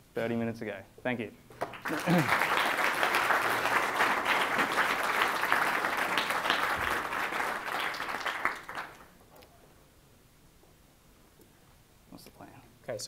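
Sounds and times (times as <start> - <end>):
audience applauding: 1.5 - 9.2.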